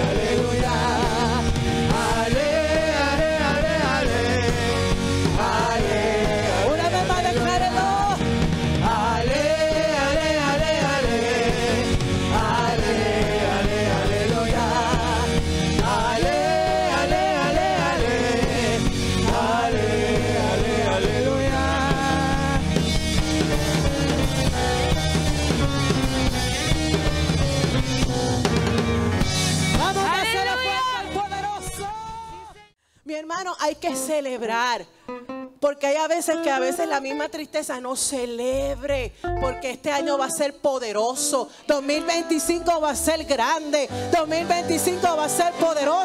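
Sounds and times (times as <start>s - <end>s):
worship band playing: 0.0s - 32.8s, 36.2s - 37.8s, 39.3s - 46.0s
woman singing lead: 35.9s - 46.0s.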